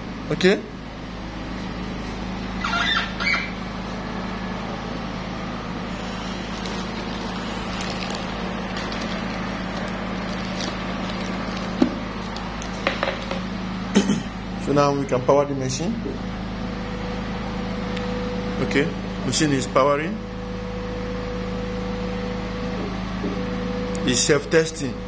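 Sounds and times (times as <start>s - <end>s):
room noise hum: 0.0s - 25.0s.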